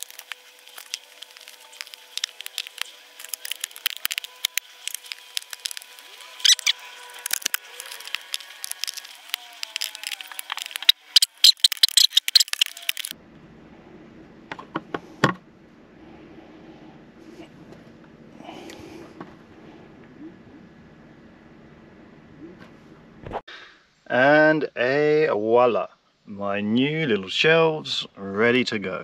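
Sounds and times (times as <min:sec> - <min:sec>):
low steady hum: 0:13.1 - 0:23.4.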